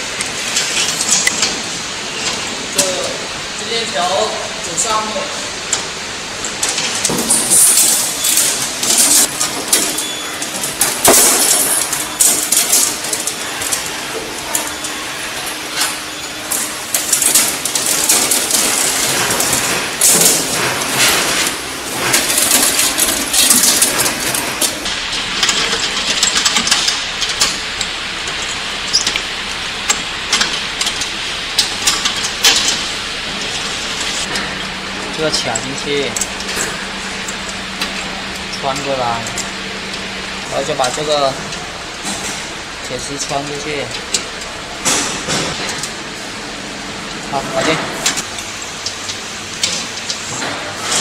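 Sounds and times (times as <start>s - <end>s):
roller chain rattling: 6.6s - 29.1s.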